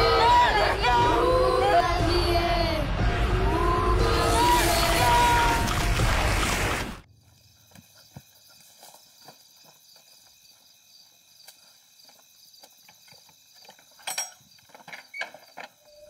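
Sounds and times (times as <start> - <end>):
crickets chirping: 7.0 - 16.0
footsteps on dirt path: 7.4 - 14.9.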